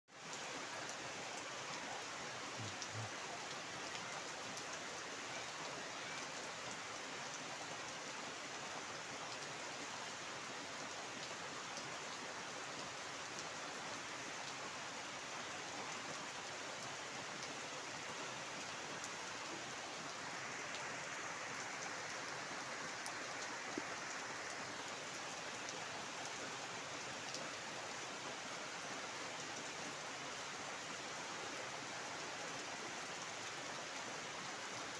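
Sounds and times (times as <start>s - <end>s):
heavy rain on water and foliage: 0.1s - 34.9s.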